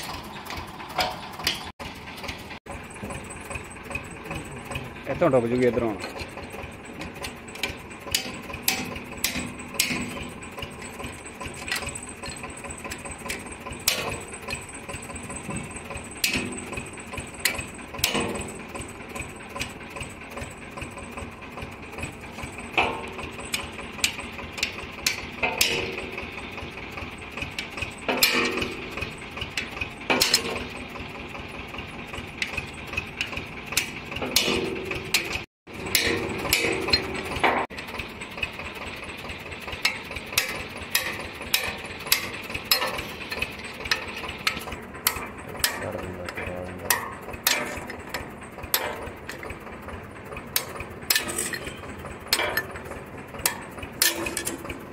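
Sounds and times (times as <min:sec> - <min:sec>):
engine running: 0:00.0 - 0:54.9
hammer striking steel chisel: 0:07.0 - 0:18.6, 0:29.6 - 0:30.8, 0:33.2 - 0:37.7, 0:39.8 - 0:49.6, 0:50.5 - 0:54.8.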